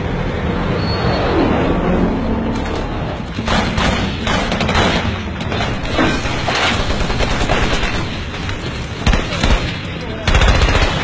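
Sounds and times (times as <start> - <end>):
low rumble: 0.0 - 7.4
rapid gunfire: 3.4 - 8.4, 9.0 - 11.0.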